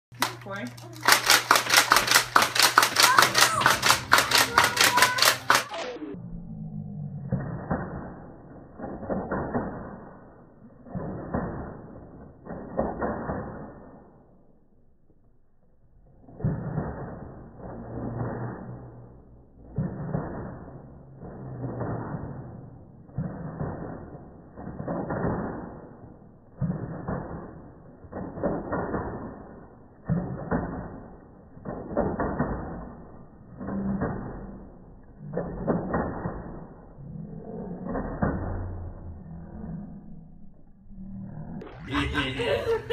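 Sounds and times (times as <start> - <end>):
toy blaster firing clicks: 0.2 - 6.1
slowed deep-pitched swells of sound: 1.8 - 15.0, 15.6 - 42.9.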